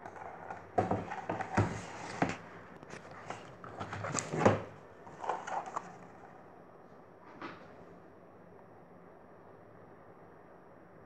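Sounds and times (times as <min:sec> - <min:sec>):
paper rustling: 0:00.0 - 0:06.2
book knocking and bumping: 0:00.1 - 0:05.8.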